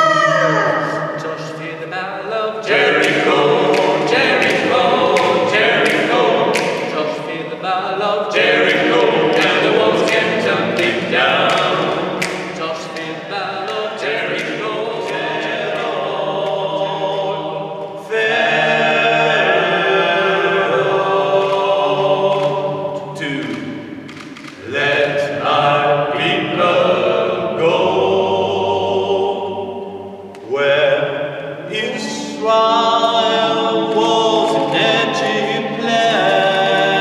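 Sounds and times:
men singing in harmony: 0:00.7 - 0:23.8, 0:24.6 - 0:37.0
sharp clicks keeping a beat: 0:02.6 - 0:07.6, 0:08.3 - 0:25.1.

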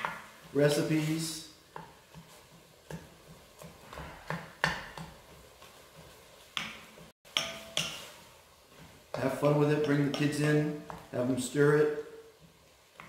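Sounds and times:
wooden spoon stirring meat: 0:00.0 - 0:13.0
spoon knocking against pot: 0:07.3 - 0:08.1.

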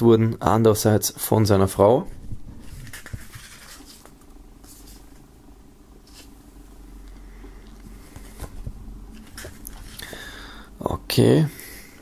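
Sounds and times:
steady low hum: 0:00.0 - 0:12.0
paper rustling: 0:02.6 - 0:05.2, 0:06.0 - 0:06.3, 0:08.1 - 0:10.2.

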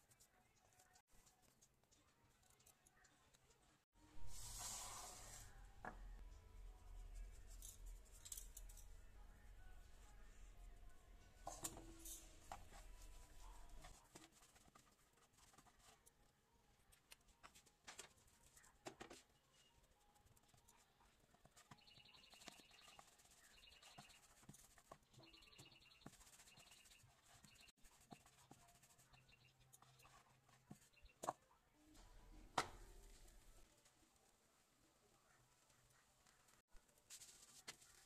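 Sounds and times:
faint high chirps: 0:21.6 - 0:24.4, 0:25.1 - 0:30.2.

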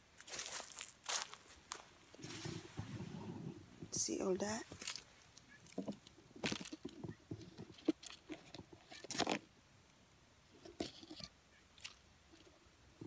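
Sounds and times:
leaves and twigs crackling: 0:00.0 - 0:03.2, 0:03.9 - 0:09.4.

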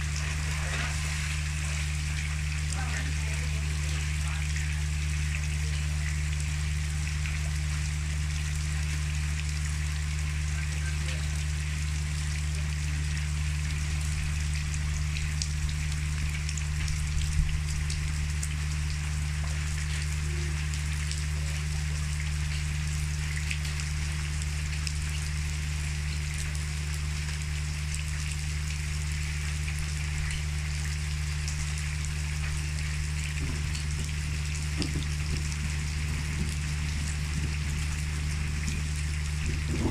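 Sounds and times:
rain pattering on wet ground: 0:00.0 - 0:39.9
steady low hum: 0:00.0 - 0:39.9.

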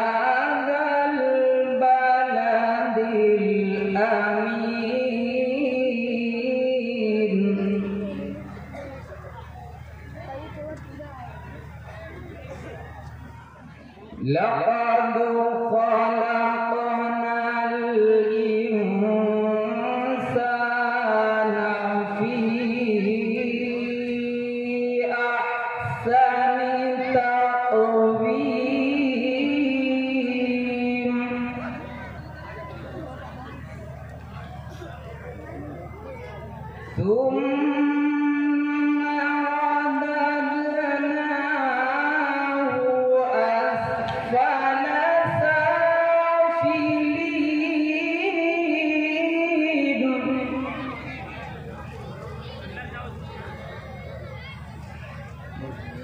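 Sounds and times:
man reciting melodically: 0:00.0 - 0:09.5, 0:14.0 - 0:33.5.

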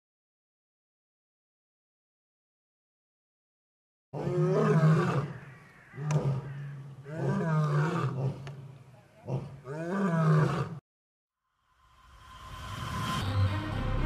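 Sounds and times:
lioness roaring: 0:04.2 - 0:10.8.

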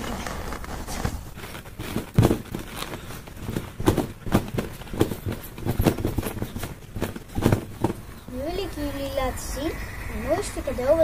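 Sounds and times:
feet thudding on trampoline: 0:00.8 - 0:08.5.

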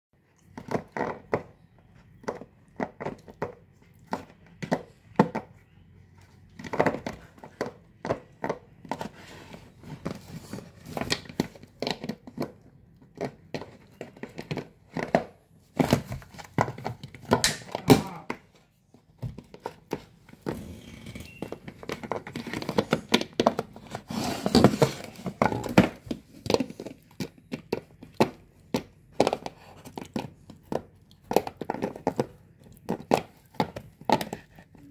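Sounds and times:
dog chewing plastic bottle: 0:00.4 - 0:05.4, 0:21.2 - 0:34.9.

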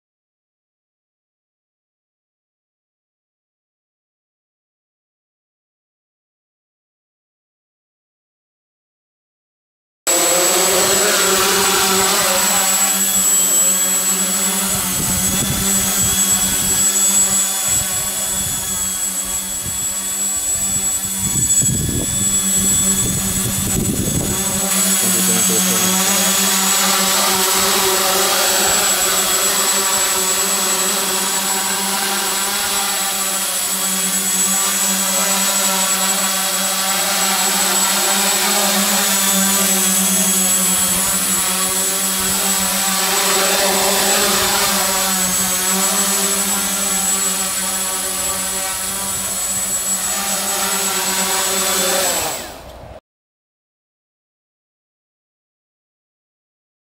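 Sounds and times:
drone motors buzzing: 0:10.1 - 0:53.0.

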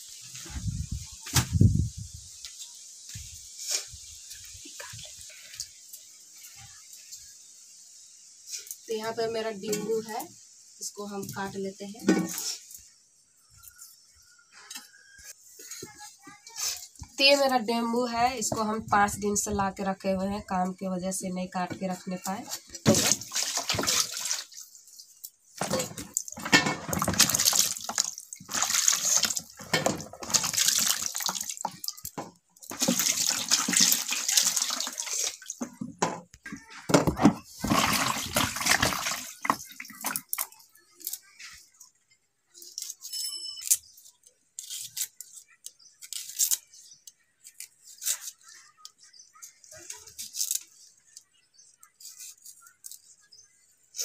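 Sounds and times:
water splashing and sloshing: 0:22.3 - 0:40.6.

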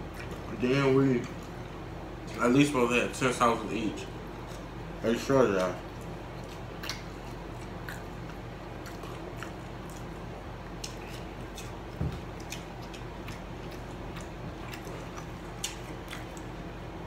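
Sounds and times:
chewing and mouth smacks: 0:00.0 - 0:00.5, 0:05.5 - 0:16.8
steady low hum: 0:00.0 - 0:17.0.

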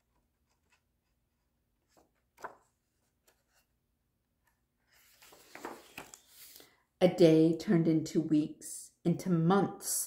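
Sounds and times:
paper page rustling: 0:00.0 - 0:03.8, 0:04.8 - 0:06.7.

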